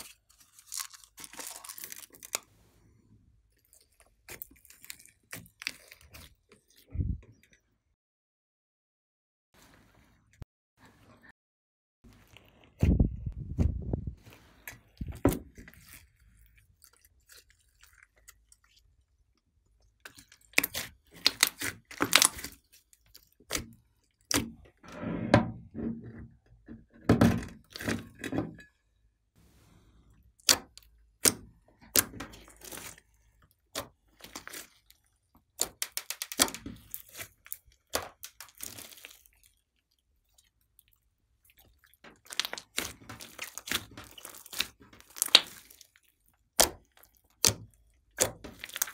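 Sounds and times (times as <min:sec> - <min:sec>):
slime crackling and squelching: 0:00.0 - 0:06.9, 0:14.2 - 0:24.9, 0:29.7 - 0:48.9.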